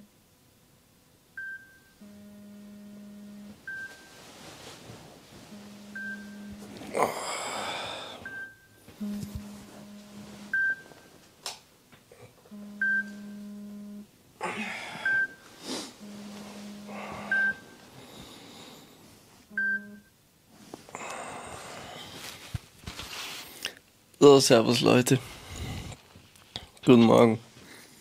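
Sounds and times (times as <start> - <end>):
low steady buzz: 0.0 - 28.0
alarm beeps: 1.4 - 4.2, 5.5 - 6.7, 8.2 - 11.1, 12.5 - 14.0, 15.0 - 15.4, 16.0 - 17.8, 19.5 - 20.1
bedding rustling: 3.6 - 8.1, 15.4 - 19.5, 21.8 - 23.6.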